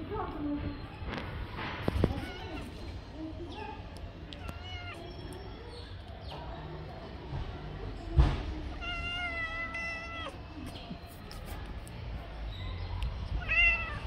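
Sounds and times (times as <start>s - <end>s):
cat meowing: 4.4s - 5.0s, 8.7s - 10.4s, 13.4s - 14.0s.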